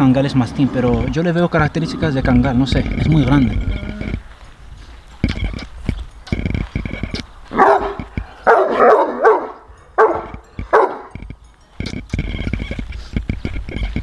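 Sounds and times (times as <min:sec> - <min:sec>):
large dog barking: 0:07.5 - 0:11.2.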